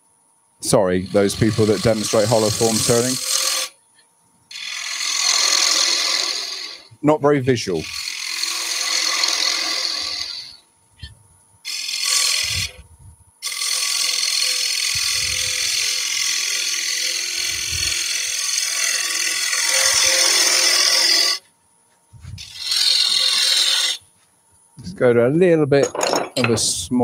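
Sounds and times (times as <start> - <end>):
lathe humming: 0.6 - 3.7, 4.5 - 21.5, 22.2 - 24.3
gouge cutting wood on lathe: 1.0 - 3.7, 4.5 - 6.9, 7.8 - 10.6, 11.7 - 12.8, 13.4 - 21.4, 22.4 - 24.0.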